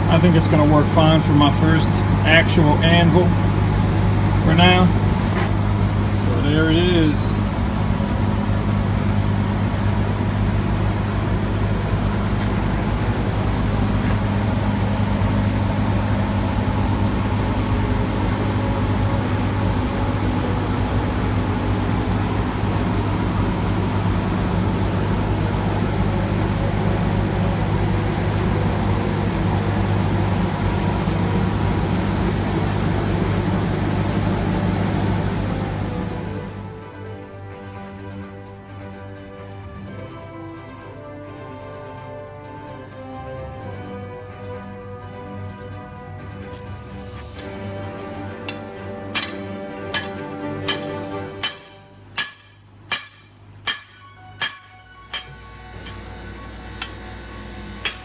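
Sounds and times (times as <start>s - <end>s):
steady machine hum: 0.0s - 58.0s.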